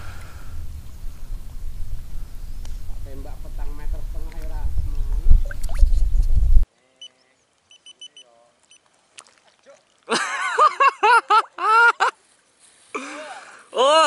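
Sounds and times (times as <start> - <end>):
wind buffeting microphone: 0.0 - 6.6
faint high chirps: 6.9 - 8.8.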